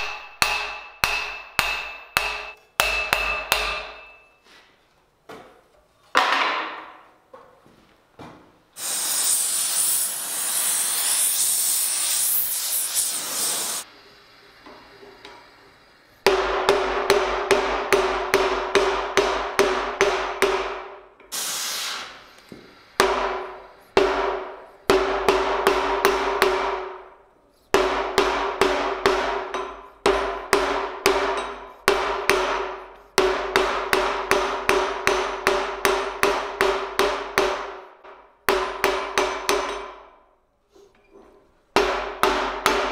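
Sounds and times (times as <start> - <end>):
hammer ringing on steel bar: 0.0 - 4.4
gas torch hissing: 8.8 - 16.3, 21.3 - 23.9.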